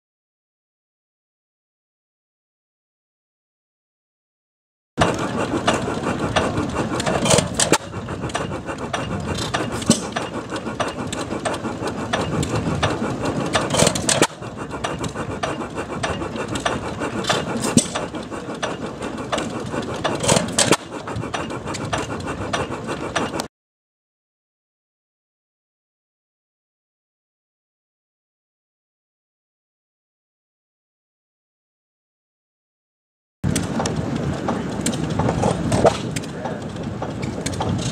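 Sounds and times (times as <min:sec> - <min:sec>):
old engines clattering: 0:05.0 - 0:23.5, 0:33.4 - 0:37.9.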